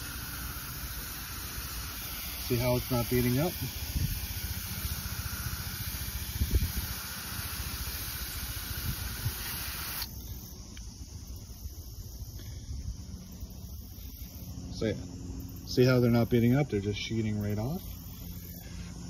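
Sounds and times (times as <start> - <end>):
hose nozzle spraying water: 0.0 - 10.1.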